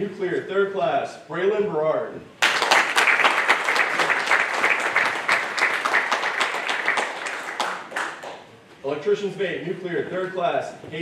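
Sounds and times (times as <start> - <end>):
audience applauding: 2.4 - 8.5.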